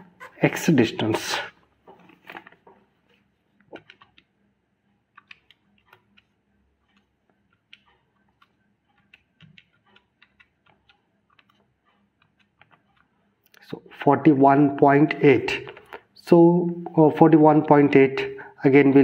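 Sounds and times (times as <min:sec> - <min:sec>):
calculator keys clicking: 0:03.6 - 0:04.3, 0:05.1 - 0:13.2.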